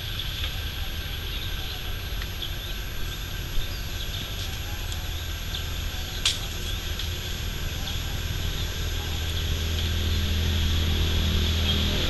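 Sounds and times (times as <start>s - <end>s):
insects buzzing: 0.0s - 12.0s
low rumble: 0.0s - 12.0s.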